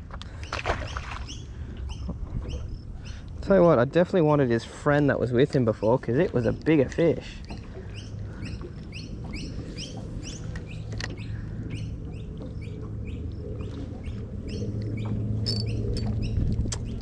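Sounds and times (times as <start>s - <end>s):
steady low hum: 0.0s - 17.0s
small bird chirping: 15.5s - 17.0s.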